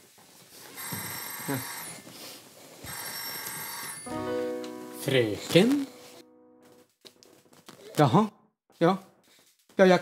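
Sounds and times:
telephone bell ringing: 0.8 - 2.0, 2.8 - 4.4
held musical tone: 4.1 - 6.9.

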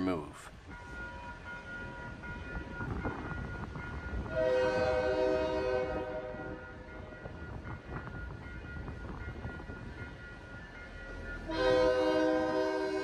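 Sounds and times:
crossing warning bell ringing: 0.0 - 13.0
locomotive air horn: 4.3 - 6.4, 11.5 - 13.0.

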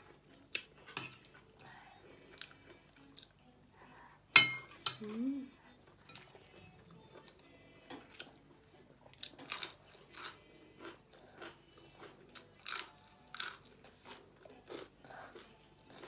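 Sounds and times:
person chewing crunchy vegetables: 9.0 - 16.0.

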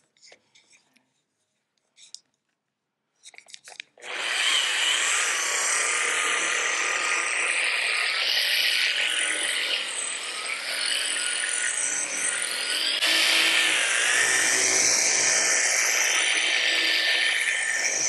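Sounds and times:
polisher motor running: 4.0 - 18.0.

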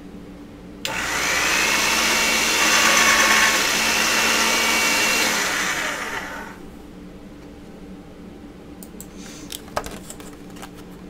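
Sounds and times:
pasta machine motor whirring: 0.9 - 6.7.

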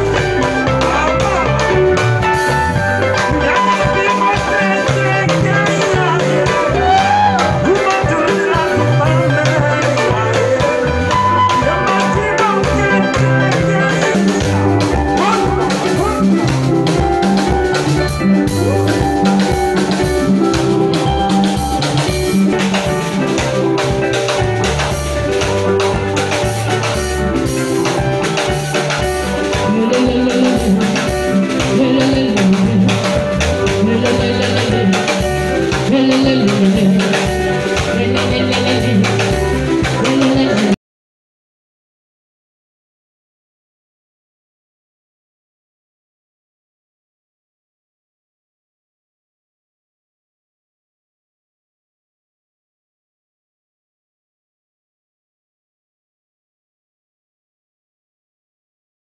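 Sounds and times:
drum kit: 0.0 - 40.8
electric bass: 0.0 - 40.8
guitar: 0.0 - 40.8
person singing: 2.4 - 17.4, 28.1 - 40.8.

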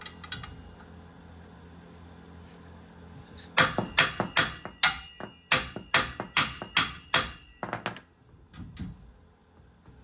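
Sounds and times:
hammer striking metal: 3.6 - 8.1.

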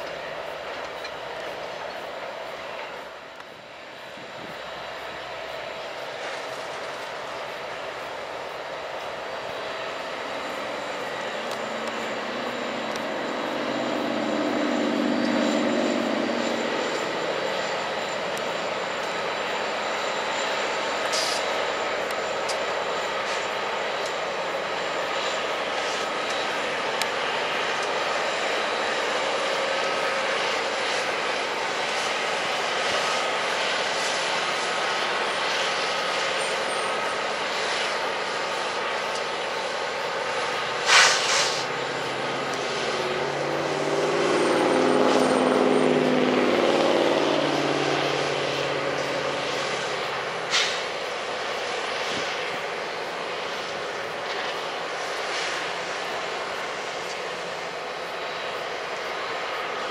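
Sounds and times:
diesel locomotive engine drone: 0.0 - 59.9
short sharp noise: 40.8 - 41.7.

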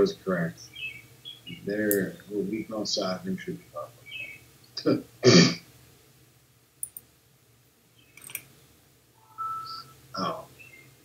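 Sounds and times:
man clearing his throat: 5.2 - 5.6
faint clicks: 6.8 - 7.1
two-note electronic beep: 9.2 - 9.9.

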